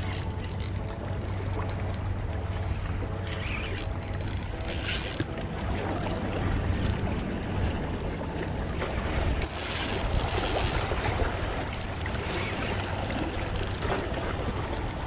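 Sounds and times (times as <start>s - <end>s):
fishing reel being cranked: 0.0s - 2.1s, 3.2s - 5.4s, 6.8s - 7.3s, 9.4s - 15.0s.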